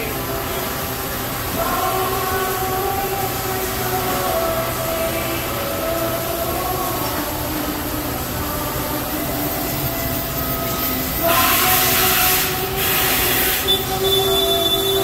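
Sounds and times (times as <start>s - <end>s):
machine hum: 0.0s - 15.0s
loud rushing hiss: 7.6s - 15.0s.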